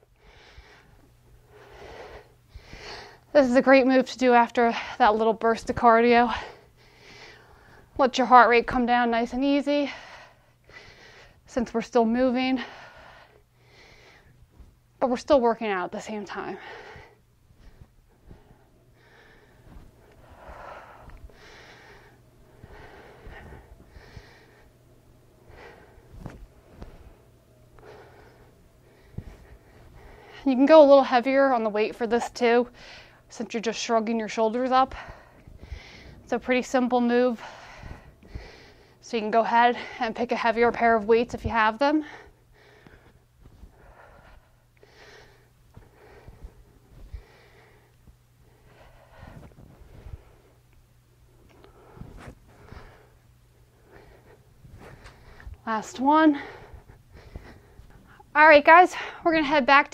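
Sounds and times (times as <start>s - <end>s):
woman breathing hard: 0.0s - 3.3s, 6.3s - 8.0s, 9.7s - 11.5s, 12.4s - 14.7s, 16.3s - 31.5s, 32.6s - 33.3s, 34.6s - 40.4s, 41.8s - 50.7s, 51.4s - 58.3s.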